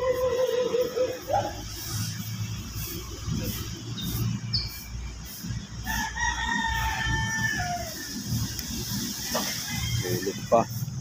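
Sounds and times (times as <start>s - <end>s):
rooster crowing: 5.8s - 11.0s.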